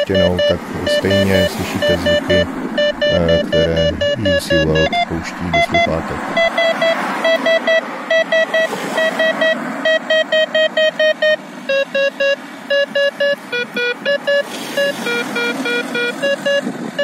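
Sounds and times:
car passing: 0.0 - 10.2
rapid electronic alert beeps: 0.0 - 16.7.

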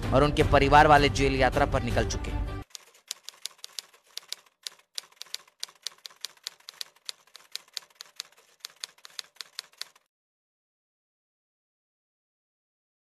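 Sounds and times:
typewriter key clicks: 2.7 - 10.1.

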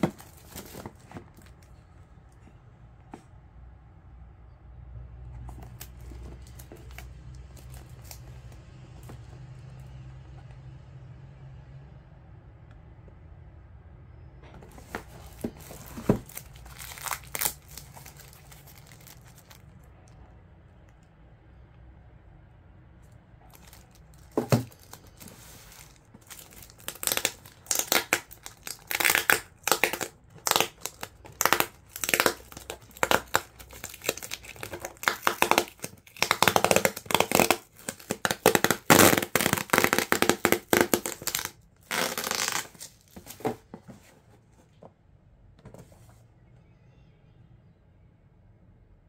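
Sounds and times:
packaging crinkling and rustling: 0.0 - 1.8, 5.4 - 9.3, 14.6 - 19.8, 23.5 - 44.2.

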